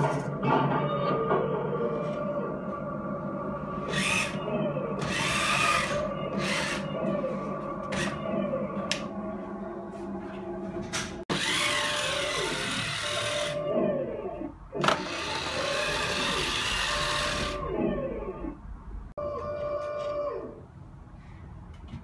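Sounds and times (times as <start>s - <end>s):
model tank mechanical drone: 11.3s - 13.6s, 14.8s - 17.6s.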